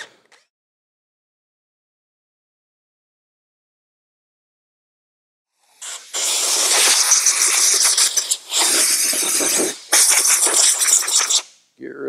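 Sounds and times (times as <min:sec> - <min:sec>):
compressed air blow gun hissing: 0:05.6 - 0:11.6.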